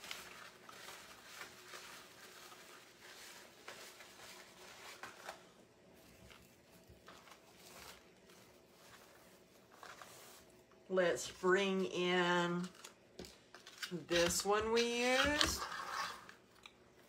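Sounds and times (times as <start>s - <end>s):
ribbon rustling and tapping: 0.0s - 10.4s.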